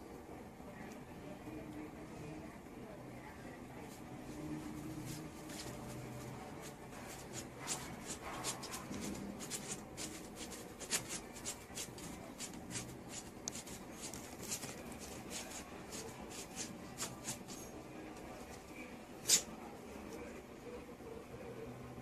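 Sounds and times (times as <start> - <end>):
dog paws scratching on fabric: 3.8 - 17.8.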